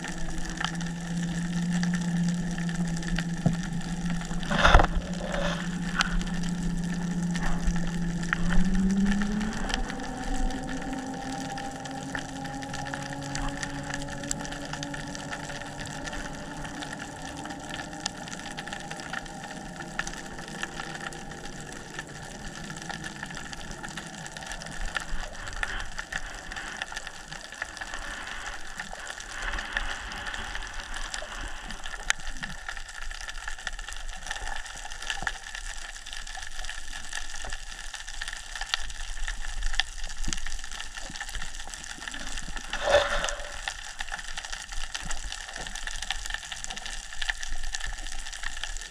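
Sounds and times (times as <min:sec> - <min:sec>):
low droning hum: 0:00.0 - 0:48.9
underwater crackle of tiny clicks: 0:00.0 - 0:48.9
water hiss: 0:20.2 - 0:32.9, 0:41.8 - 0:44.8.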